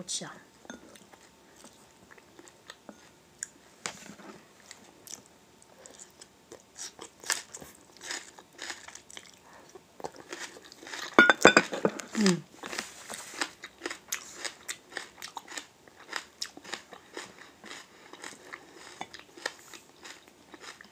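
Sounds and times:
biting and chewing: 12.7s - 20.9s.

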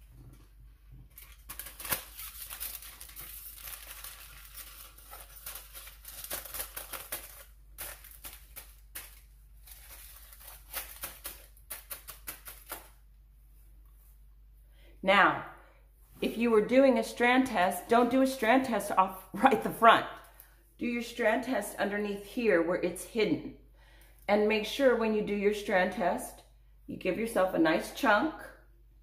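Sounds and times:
foil crinkling and crackling: 1.1s - 13.0s.

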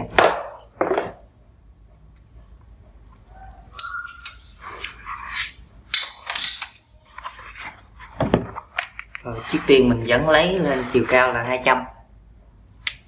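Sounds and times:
steel ruler scraping cardboard: 9.2s - 11.4s.

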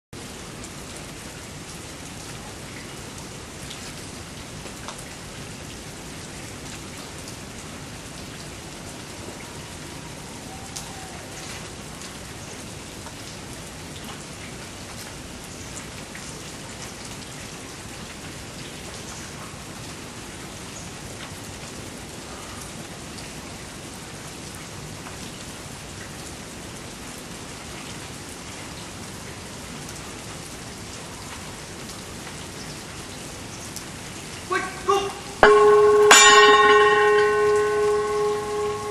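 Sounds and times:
steady rain falling: 0.2s - 38.9s
sharp taps of raindrops: 4.6s - 5.3s, 14.0s - 17.3s.

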